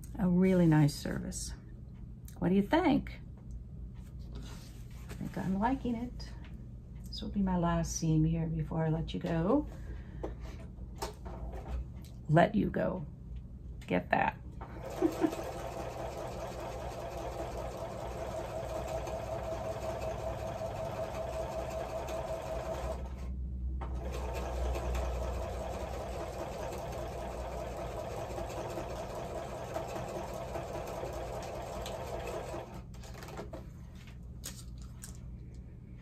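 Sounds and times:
sewing machine running: 14.6s - 33.4s.

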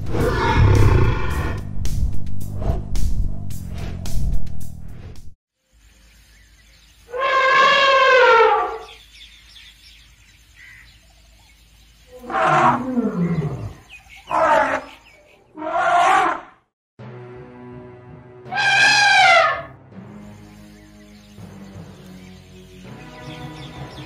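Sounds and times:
animal roaring: 0.0s - 1.6s, 12.2s - 15.0s.

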